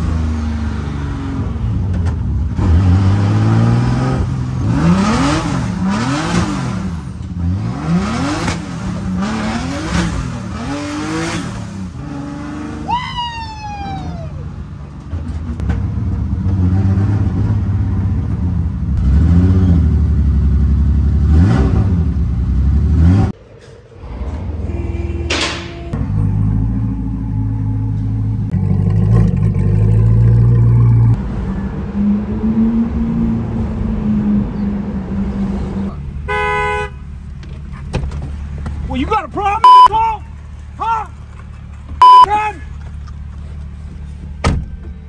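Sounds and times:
car engine revving: 2.5 - 12.9.

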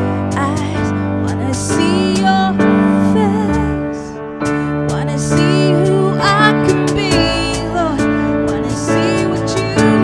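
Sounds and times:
keyboard chords: 0.0 - 10.0
woman singing: 0.0 - 10.0.

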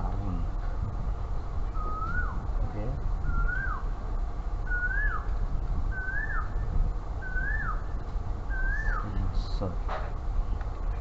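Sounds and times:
bird whistle rising and dropping: 1.8 - 2.4, 3.2 - 3.9, 4.6 - 5.3, 5.9 - 7.9, 8.5 - 9.1.

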